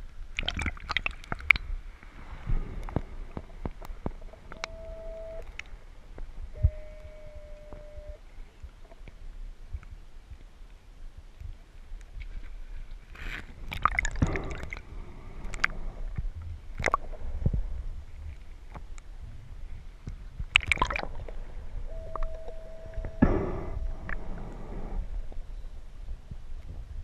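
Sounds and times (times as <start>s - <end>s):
short steady tone: 4.5s - 5.5s, 6.5s - 8.2s, 21.9s - 24.2s
exhaled bubbles rushing underwater: 20.6s - 21.3s.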